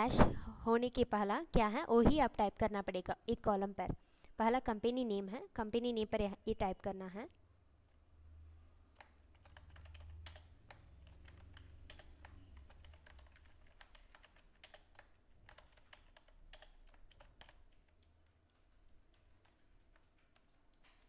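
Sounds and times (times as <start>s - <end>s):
typing on keyboard: 8.9s - 21.0s.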